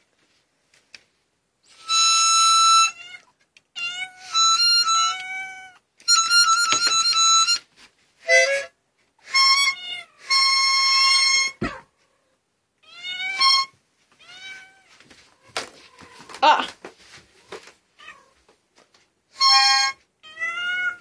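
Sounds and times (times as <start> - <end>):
harmonica chords: 1.7 - 3.0, 4.2 - 5.2, 6.0 - 11.6, 19.3 - 20.1
cat meowing: 2.7 - 4.4, 5.0 - 5.8, 9.7 - 16.7, 18.0 - 18.4, 19.5 - 21.0.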